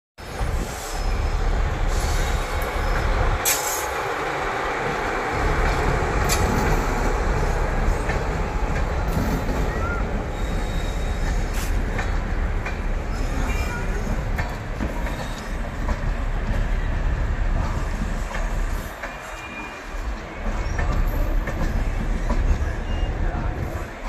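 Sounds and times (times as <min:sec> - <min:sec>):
train wheels rumbling on rails: 0:00.2 - 0:24.0
sharp rail clicks: 0:02.0 - 0:09.8, 0:10.8 - 0:13.2.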